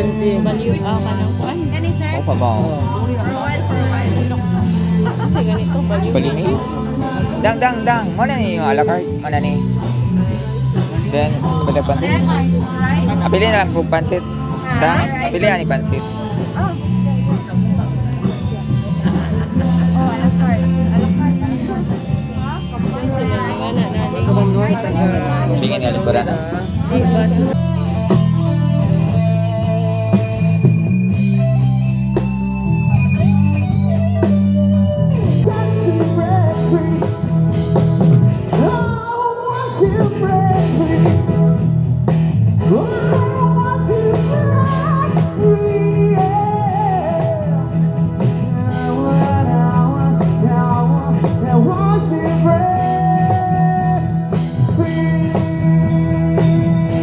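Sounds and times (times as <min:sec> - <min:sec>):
live rock band: 0:00.0 - 0:57.0
person singing: 0:02.6 - 0:09.4, 0:14.2 - 0:30.4, 0:35.1 - 0:41.8, 0:42.6 - 0:57.0.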